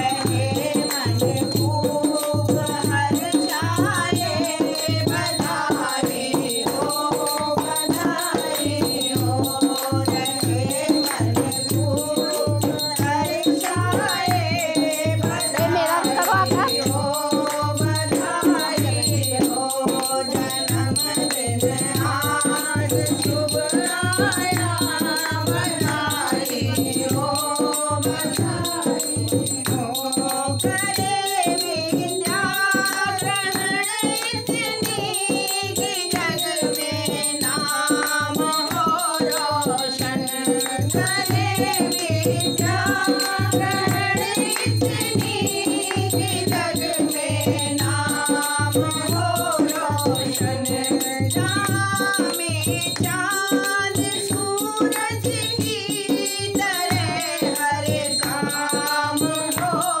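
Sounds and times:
rattling hand percussion: 0.0 - 60.0
women singing together: 0.0 - 60.0.

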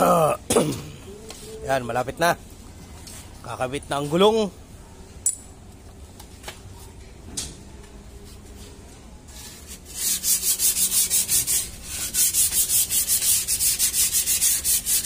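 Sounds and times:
sanding brake lining: 9.4 - 15.0.

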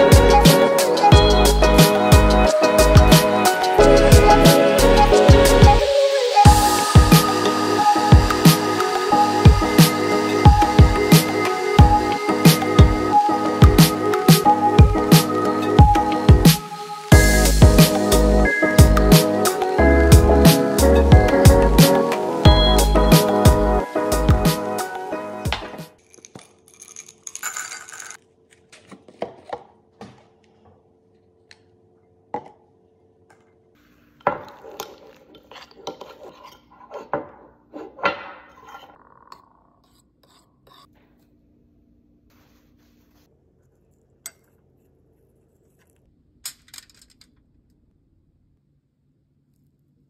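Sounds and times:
metal spoon scraping ceramic bowl: 34.2 - 40.9.

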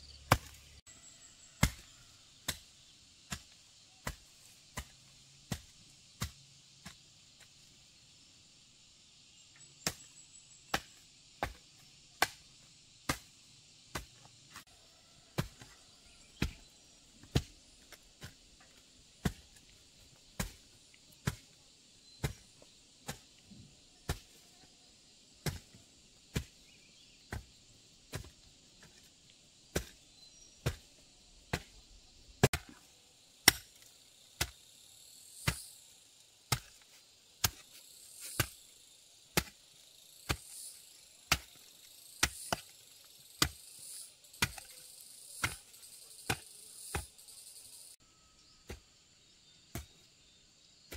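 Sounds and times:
hand tool chopping strikes: 0.3 - 0.6, 1.6 - 1.9, 12.2 - 12.4, 20.4 - 20.6, 25.4 - 25.7, 31.5 - 31.7, 32.4 - 32.8, 33.4 - 34.6, 35.4 - 35.7, 36.5 - 36.8, 37.4 - 38.6, 39.4 - 39.6, 40.3 - 42.8, 43.4 - 47.2.

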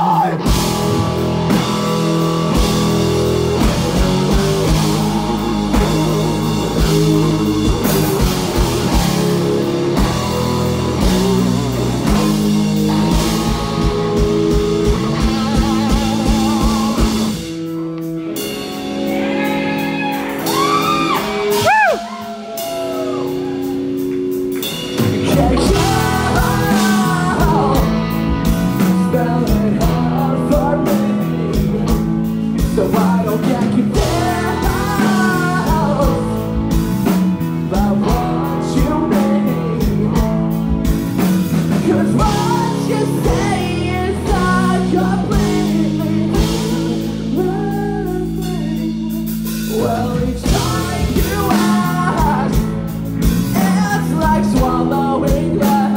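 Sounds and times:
rock band playing: 0.0 - 55.9
sliding high guitar notes: 0.3 - 29.0
person singing: 3.6 - 17.6, 18.4 - 24.0, 25.0 - 55.9.

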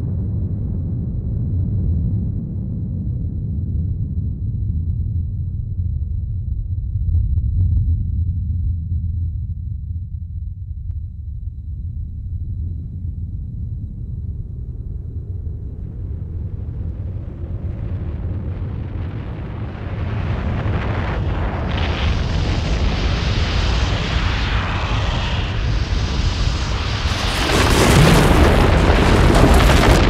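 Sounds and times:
avalanche rumble: 11.3 - 30.0.

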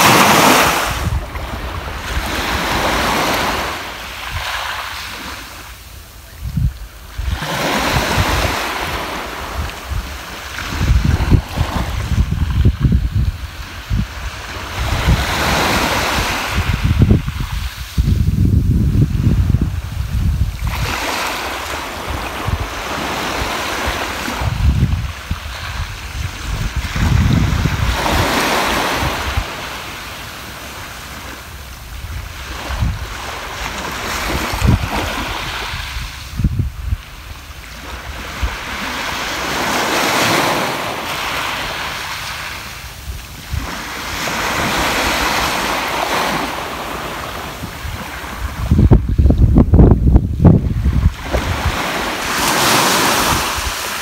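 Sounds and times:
waves washing on pebble beach: 0.0 - 5.6, 50.8 - 54.0
wind rumble on microphone: 0.0 - 30.0, 30.6 - 54.0.

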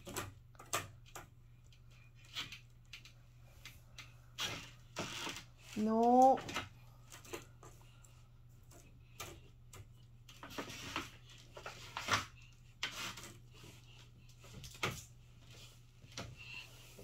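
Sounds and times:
rustling of small things: 0.0 - 17.0.

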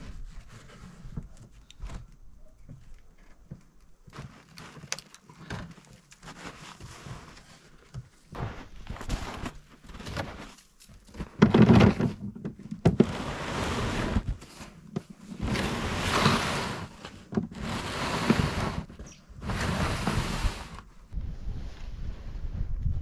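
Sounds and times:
sled dragged over snow: 6.2 - 22.8.

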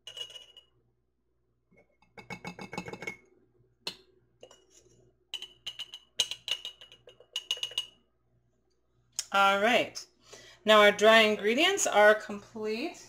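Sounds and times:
metal spoon tapping glass jars: 0.0 - 0.7, 5.4 - 8.0.

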